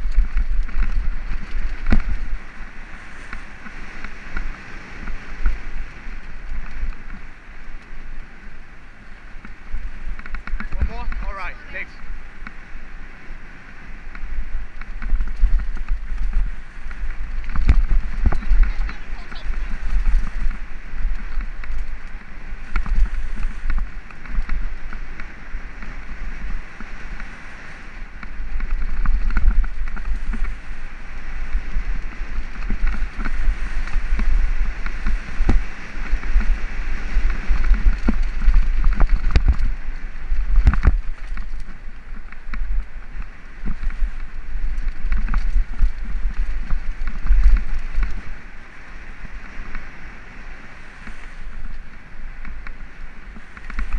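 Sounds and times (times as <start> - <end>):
wind buffeting microphone: 0.0 - 53.9
bike clacking and rattling: 37.2 - 48.2.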